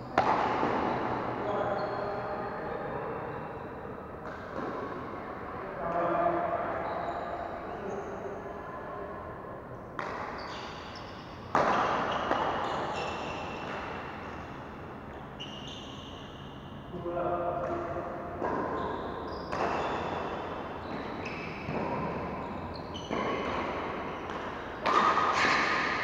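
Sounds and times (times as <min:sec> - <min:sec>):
shoe squeaks: 0:01.4 - 0:02.4, 0:06.8 - 0:08.1, 0:10.2 - 0:16.9, 0:18.6 - 0:26.0
shuttlecock hits: 0:24.2 - 0:26.0.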